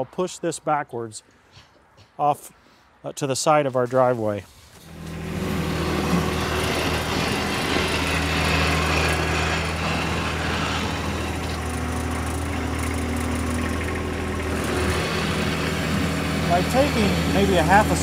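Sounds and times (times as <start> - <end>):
blade scraping snow on concrete: 3.9 - 18.0
tractor diesel engine running: 4.8 - 18.0.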